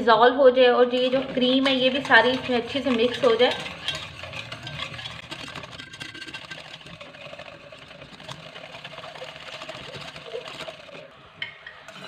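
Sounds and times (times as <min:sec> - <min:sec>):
spoon scraping a saucepan: 0:00.9 - 0:12.0.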